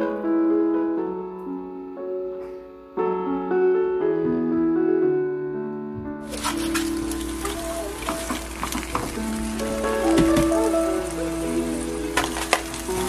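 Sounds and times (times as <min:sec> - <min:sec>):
piano music: 0:00.0 - 0:13.0.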